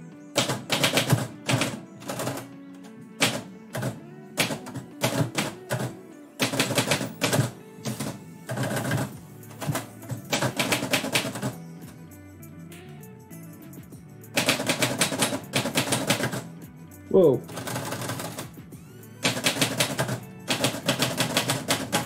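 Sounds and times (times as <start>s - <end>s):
background music: 0.0s - 22.0s
typewriter keys typing: 0.4s - 2.5s, 3.2s - 11.6s, 14.4s - 16.4s, 17.5s - 18.5s, 19.2s - 22.0s.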